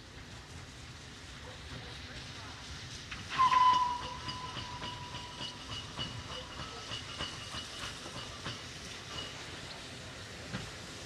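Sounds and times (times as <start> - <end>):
steam locomotive whistle: 3.3 - 5.7.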